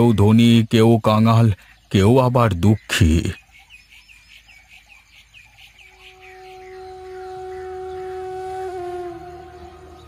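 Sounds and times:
held wind-instrument note: 0:06.0 - 0:10.0.

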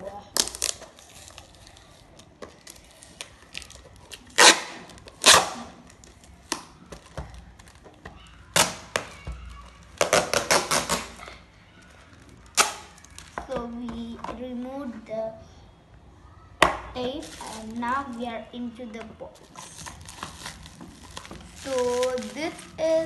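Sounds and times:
packing tape ripping: 0:00.4 - 0:06.7, 0:10.0 - 0:11.4, 0:12.4 - 0:13.3, 0:19.6 - 0:22.5.

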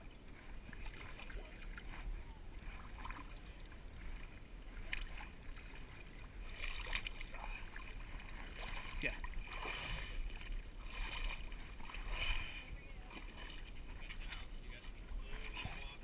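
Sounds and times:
shallow water sloshing and splashing: 0:00.0 - 0:16.0.

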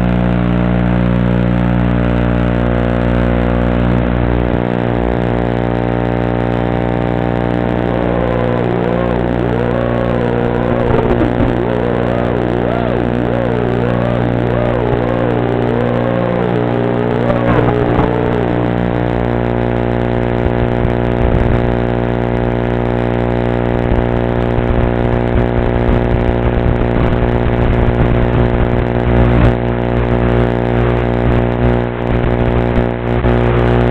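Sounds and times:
electrical buzz: 0:02.1 - 0:21.6
drone motors whining: 0:07.1 - 0:19.6.

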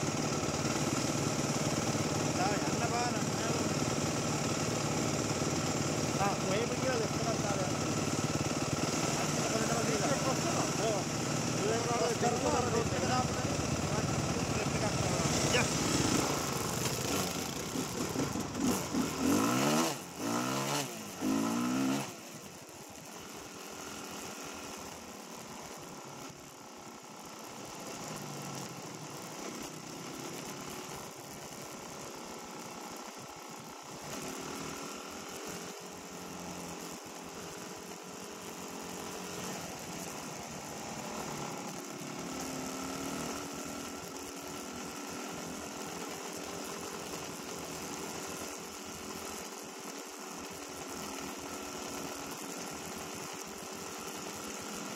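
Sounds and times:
dirt bike engine revving: 0:00.0 - 0:22.6, 0:33.8 - 0:54.9.

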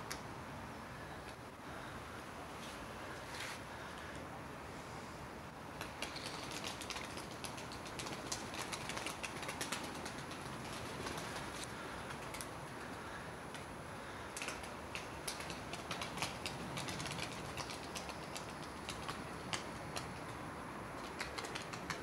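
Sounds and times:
steady outdoor hiss: 0:00.0 - 0:22.0
pigeon wings clapping: 0:05.8 - 0:13.6, 0:14.3 - 0:20.4, 0:21.0 - 0:22.0.

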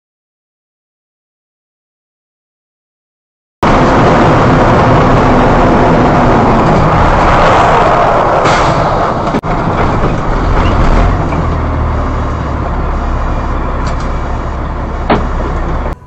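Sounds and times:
car road and engine noise: 0:03.6 - 0:16.0.

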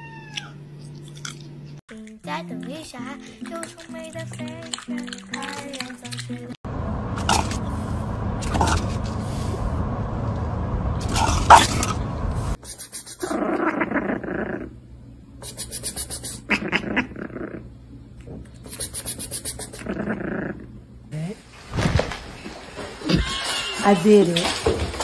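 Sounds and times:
car road noise: 0:06.6 - 0:12.6.

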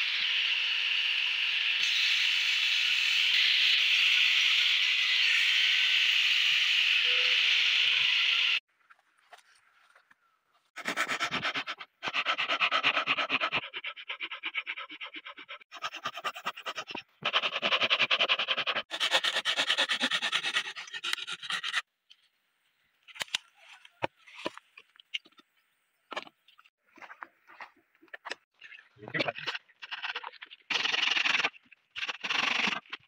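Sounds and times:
hand saw cutting wood: 0:10.8 - 0:21.8.

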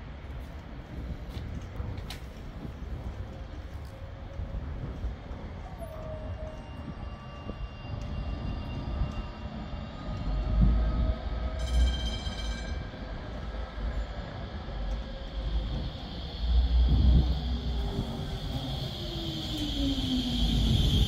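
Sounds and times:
wheels rumbling on rail: 0:00.0 - 0:21.0
tram motor whine: 0:03.0 - 0:21.0.

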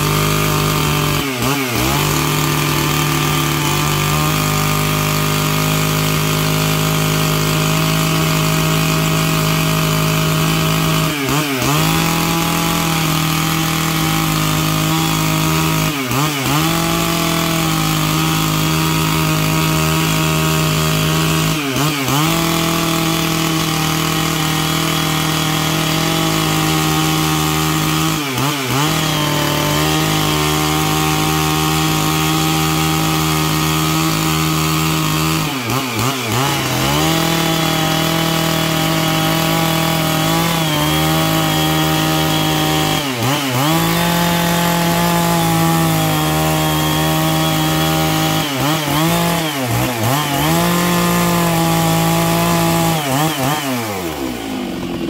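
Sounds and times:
chainsaw cutting log: 0:00.0 - 0:55.0.

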